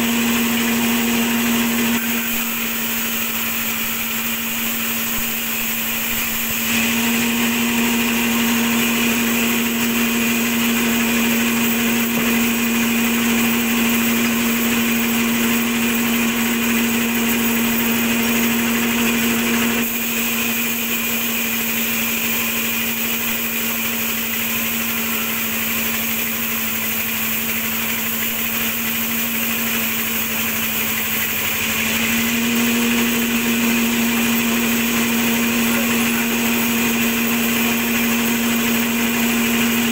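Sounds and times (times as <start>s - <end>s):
strong steady hum: 0.0s - 21.3s, 31.7s - 39.9s
band saw cutting timber: 0.0s - 39.9s.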